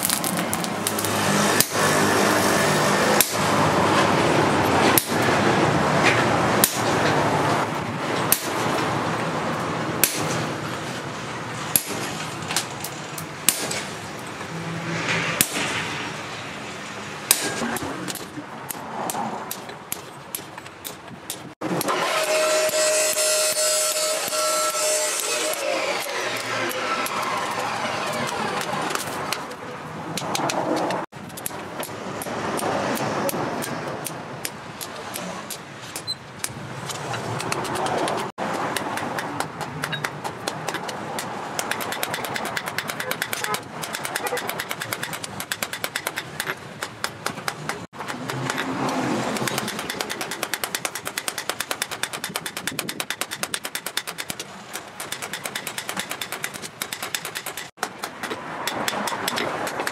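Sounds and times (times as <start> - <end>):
hammer striking steel on anvil: 0.8 - 2.0, 3.2 - 3.5, 4.9 - 5.3, 6.6 - 7.1, 8.3 - 8.7, 10.0 - 10.5, 11.7 - 12.2, 13.4 - 14.0, 15.4 - 15.8, 17.3 - 27.3.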